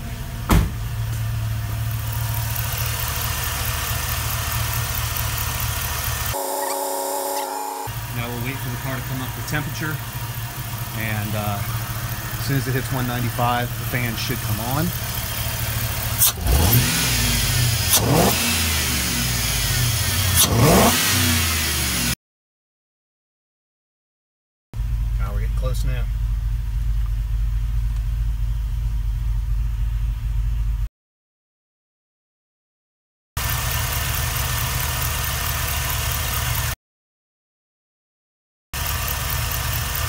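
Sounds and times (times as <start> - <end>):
car engine idling: 0.0 - 20.4, 24.8 - 30.9, 33.4 - 36.8, 38.8 - 40.0
sharp thump: 0.5 - 0.8.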